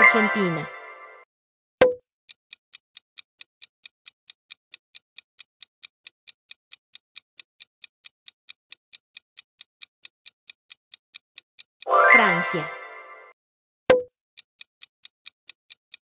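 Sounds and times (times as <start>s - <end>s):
countdown timer ticking: 0.0s - 1.2s, 11.8s - 14.1s.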